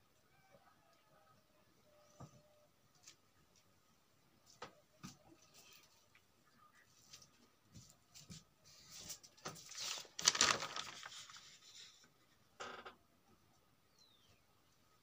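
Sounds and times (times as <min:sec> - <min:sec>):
paper page turning: 0:08.9 - 0:12.1.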